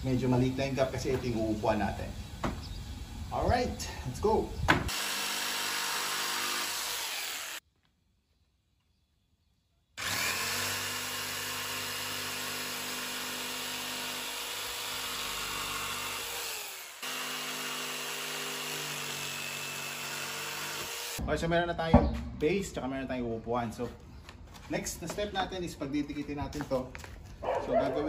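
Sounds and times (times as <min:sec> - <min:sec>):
electric jigsaw sawing wood: 0:04.9 - 0:07.6, 0:10.0 - 0:21.2.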